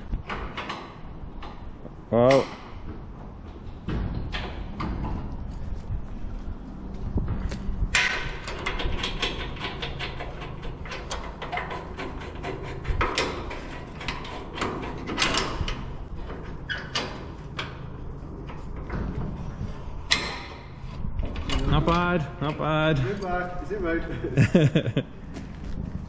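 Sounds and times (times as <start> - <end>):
metal gate clicking and knocking: 0.2 - 2.9, 3.5 - 5.4, 7.9 - 19.3, 20.0 - 23.3.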